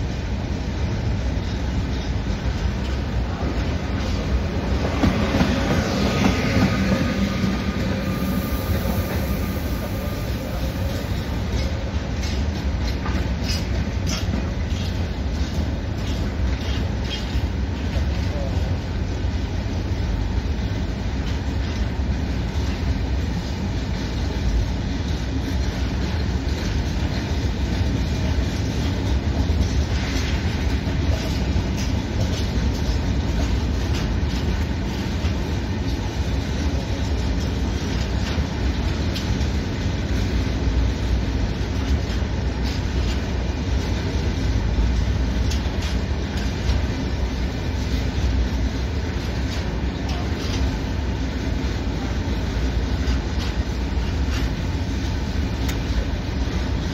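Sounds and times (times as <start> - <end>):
train wheels rumbling on rail: 0.0 - 56.9
wheels clattering over rail joints: 10.7 - 18.8, 24.1 - 56.9.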